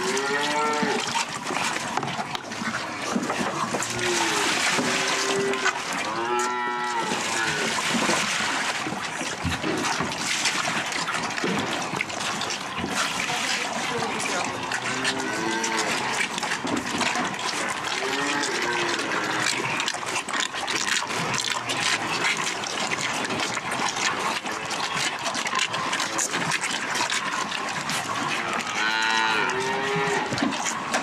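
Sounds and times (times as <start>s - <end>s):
calves bawling: 10.9s - 31.0s.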